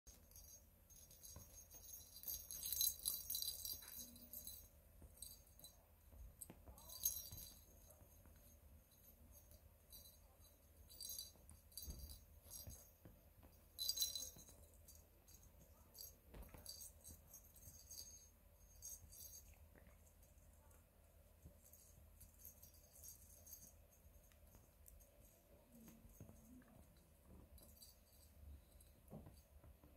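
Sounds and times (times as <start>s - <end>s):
bell in toy ball jingling: 0.1s - 5.8s, 6.4s - 19.6s, 21.5s - 24.3s.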